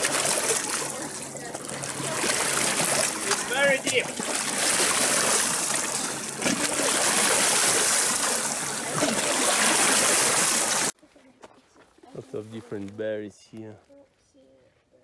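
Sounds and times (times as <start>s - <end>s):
lake water lapping: 0.0s - 11.0s.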